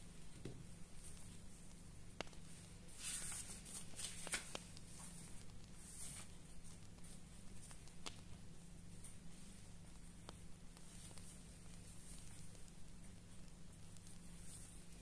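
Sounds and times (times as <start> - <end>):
steady low hum: 0.0 - 15.0
paper pages rustling: 3.0 - 5.1.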